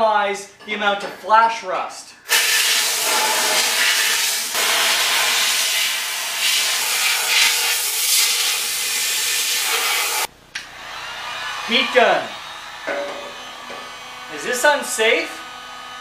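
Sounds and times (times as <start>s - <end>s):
compressed air gun hissing: 2.3s - 10.3s.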